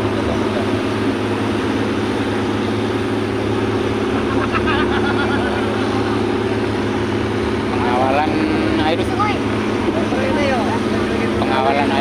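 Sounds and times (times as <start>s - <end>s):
boat engine running: 0.0s - 12.0s
voices: 4.1s - 12.0s.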